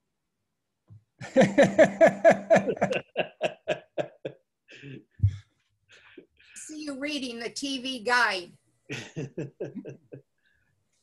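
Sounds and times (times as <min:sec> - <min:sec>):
man laughing: 0:01.2 - 0:04.4, 0:08.9 - 0:10.3.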